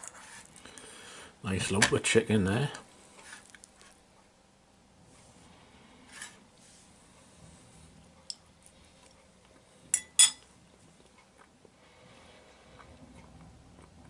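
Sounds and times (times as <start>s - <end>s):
fork clinking on ceramic bowl: 10.0s - 10.4s.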